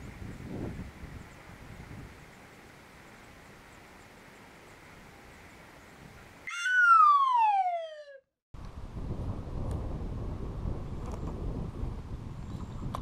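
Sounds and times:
wind noise on microphone: 0.0 - 2.4, 8.6 - 13.0
downward gliding tone: 6.5 - 8.3.

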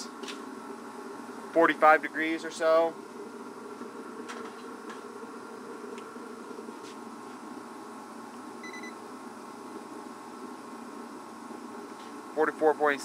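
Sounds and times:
low motor hum: 0.0 - 12.6
short electronic beep: 8.6 - 9.0.

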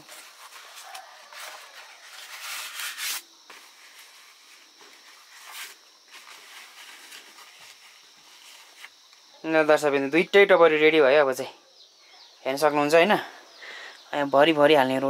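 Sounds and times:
leaves rustling and crackling: 0.0 - 9.2.

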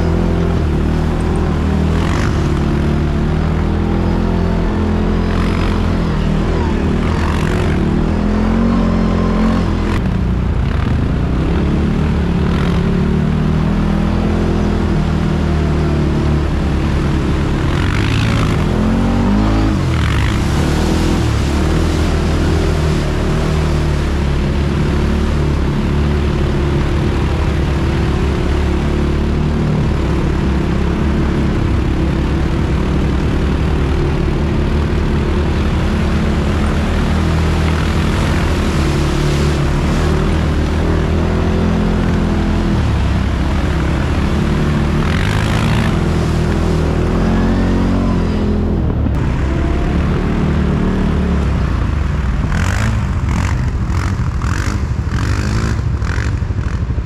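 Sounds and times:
atv engine running: 0.0 - 57.0.

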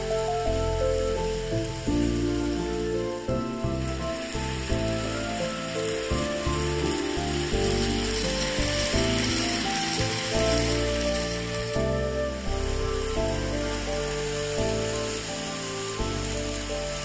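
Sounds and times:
background music with held notes: 0.0 - 17.0
steady hiss: 0.0 - 17.0
model train clicking on track: 3.6 - 12.8.

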